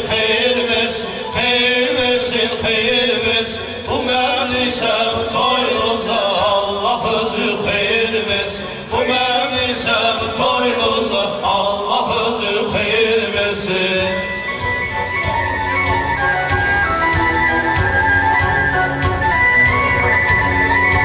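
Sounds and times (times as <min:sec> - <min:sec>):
man chanting a hymn: 0:00.0 - 0:14.4.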